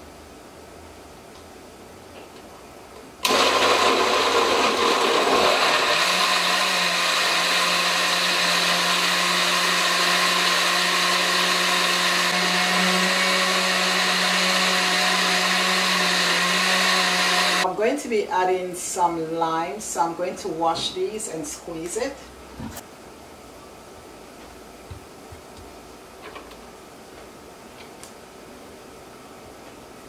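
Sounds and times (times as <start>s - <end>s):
blender whirring: 3.2s - 17.7s.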